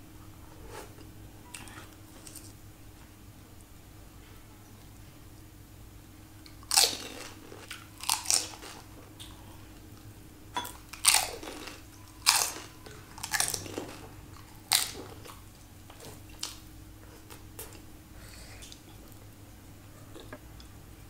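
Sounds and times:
crunchy bites: 6.5s - 9.4s, 10.9s - 15.4s
person chewing: 6.5s - 9.9s, 10.7s - 17.8s.

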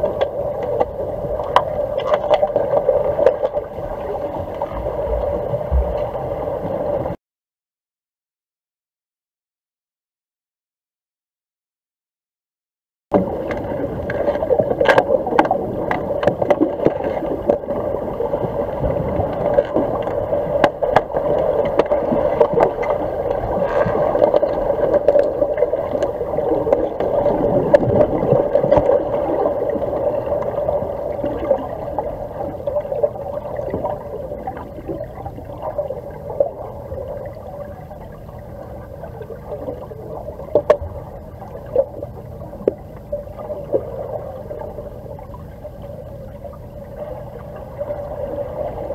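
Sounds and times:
muffled underwater hum and churn: 0.0s - 7.2s, 13.1s - 48.9s.

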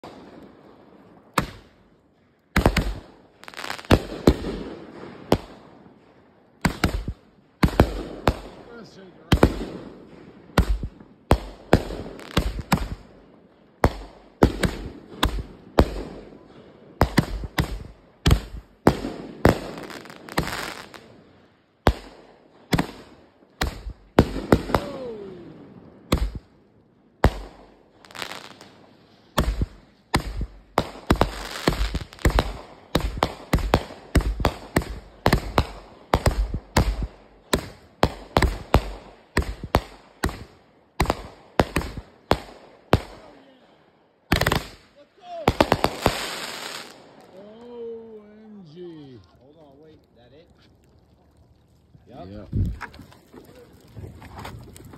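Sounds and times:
firework bangs: 2.5s - 26.6s, 27.2s - 43.4s, 44.3s - 47.4s
firework hissing: 45.6s - 47.0s.

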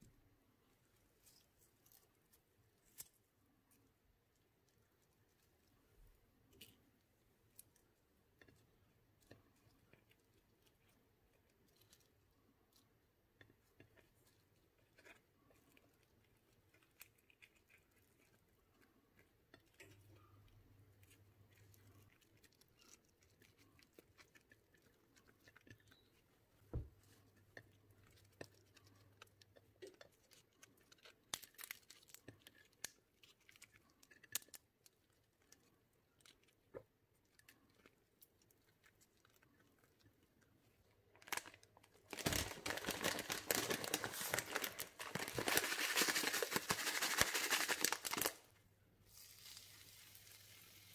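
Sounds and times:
thin wrapper rustling on a plate: 41.1s - 48.5s.

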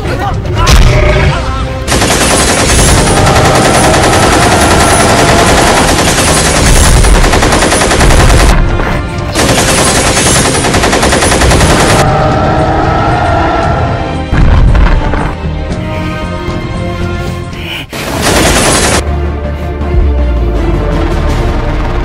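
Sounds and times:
automatic rifle fire: 1.9s - 8.6s.

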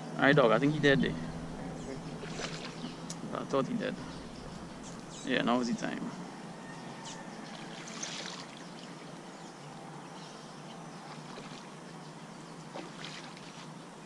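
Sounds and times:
steady hiss: 0.2s - 6.2s.

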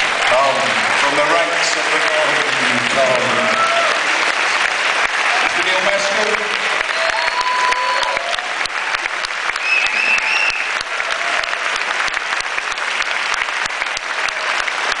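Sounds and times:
audience applauding: 0.0s - 15.0s
whistles: 9.6s - 10.8s.

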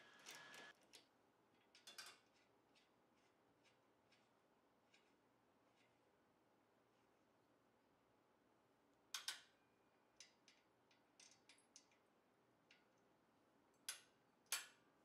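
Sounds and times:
metallic clicks of nut and washers: 9.1s - 9.6s, 10.2s - 12.0s.

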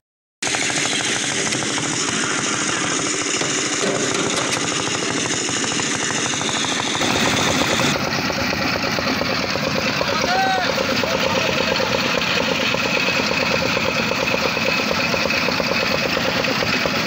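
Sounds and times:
concrete mixer running: 0.4s - 17.0s
fast even rattle: 0.4s - 17.0s.

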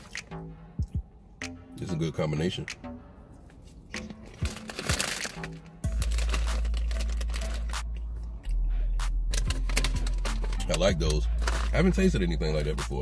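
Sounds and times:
music with deep bass: 0.0s - 13.0s
crunching cheese puffs: 4.3s - 7.8s.

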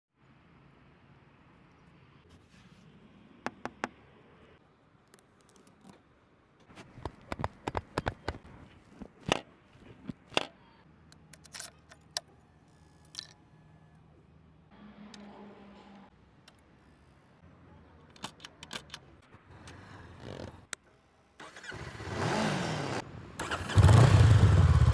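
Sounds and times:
motorcycle parts clicking and knocking: 5.0s - 12.4s, 18.1s - 20.8s.

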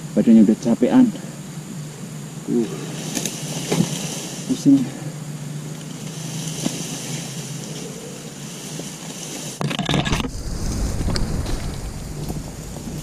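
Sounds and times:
palm frond rustling and scraping: 2.6s - 13.0s
wind rumbling on microphone: 9.9s - 13.0s.

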